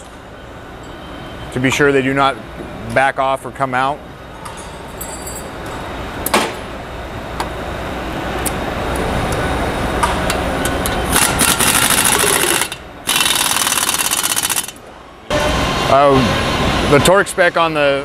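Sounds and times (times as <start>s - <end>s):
pneumatic impact wrench hammering: 11.1s - 14.8s.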